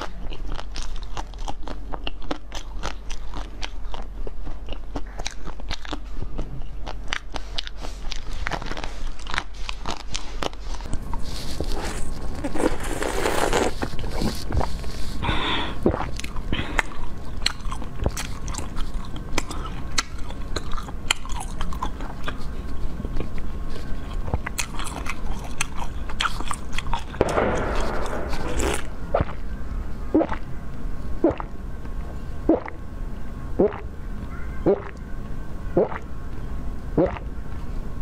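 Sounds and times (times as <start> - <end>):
crunchy chewing: 0.0 - 29.4, 33.6 - 35.1
mouth sounds: 30.1 - 30.5, 31.2 - 31.6, 32.4 - 32.8, 33.6 - 35.0, 35.7 - 36.1, 36.9 - 37.3.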